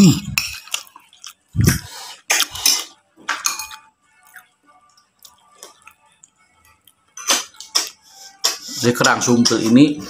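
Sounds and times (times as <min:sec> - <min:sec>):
spoon clinking against bowl: 0:02.3 - 0:03.9.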